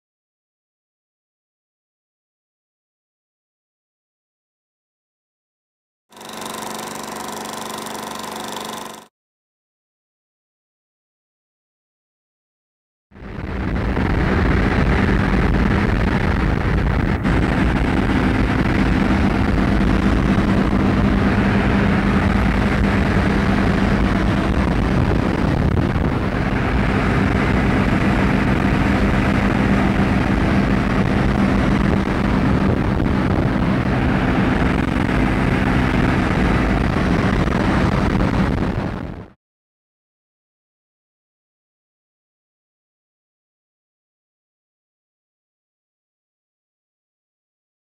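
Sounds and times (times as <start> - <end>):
propeller aircraft engine droning: 6.1 - 9.1, 13.2 - 39.4
rushing wind: 13.2 - 39.4.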